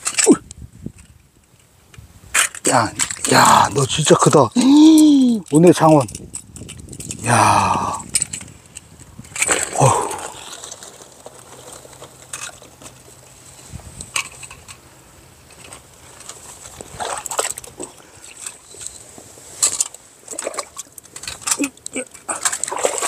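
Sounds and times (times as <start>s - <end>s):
small water splashes: 16.8s - 18.5s, 20.2s - 23.0s.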